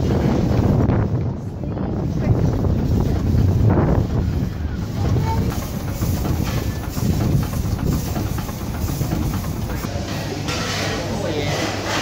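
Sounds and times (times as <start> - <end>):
steam engine rapid knocking beat: 2.2 - 10.8.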